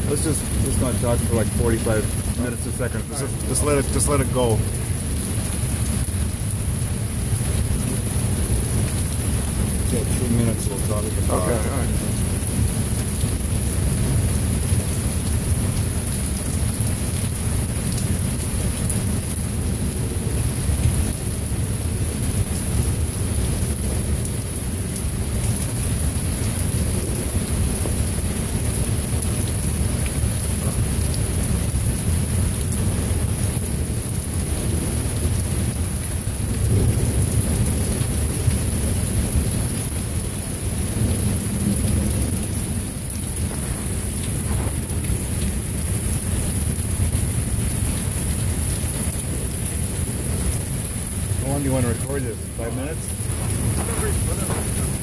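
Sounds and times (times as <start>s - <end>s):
heavy rain pouring: 0.0s - 55.0s
rolling thunder: 40.7s - 46.5s.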